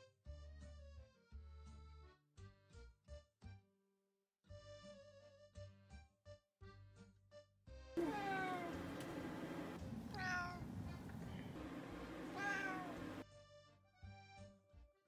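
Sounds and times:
cat meowing: 8.0 - 13.2.

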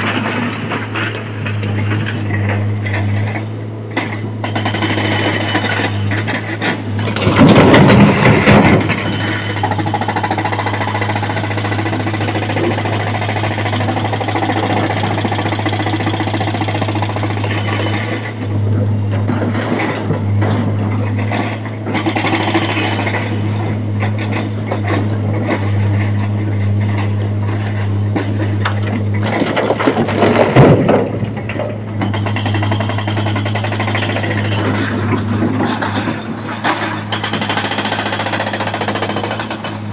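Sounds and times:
machine engines humming: 0.0 - 39.9
rock crashing into metal truck body: 7.0 - 9.4, 29.4 - 31.4.

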